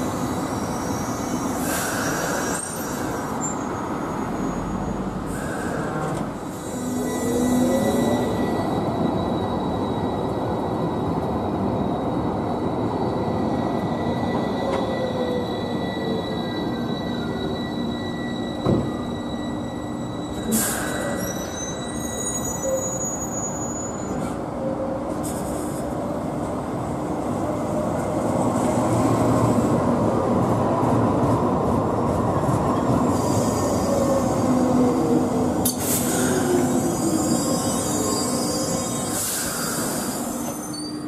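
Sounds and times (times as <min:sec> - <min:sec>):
tram motor whine: 0:00.0 - 0:23.0
high wheel squeals: 0:00.2 - 0:24.8, 0:35.7 - 0:41.0
tram wheels rumbling: 0:24.0 - 0:41.0.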